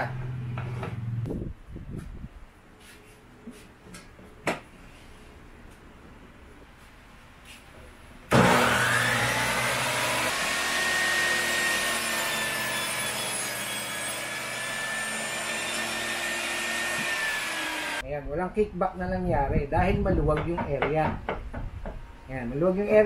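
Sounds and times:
table saw motor whining: 0:08.3 - 0:18.0.

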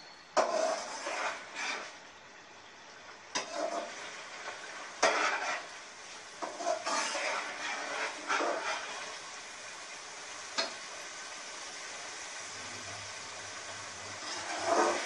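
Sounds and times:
food sizzling: 0:00.0 - 0:15.0
metal spatula scraping pot: 0:00.1 - 0:02.1, 0:03.3 - 0:09.3, 0:14.2 - 0:15.0.

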